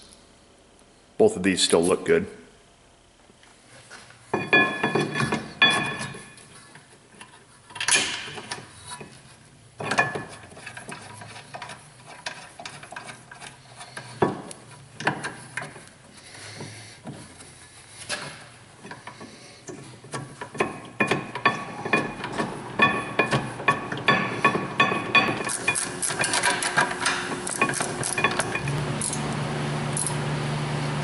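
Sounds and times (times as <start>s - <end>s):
sharp metal knocks: 20.1s - 28.8s.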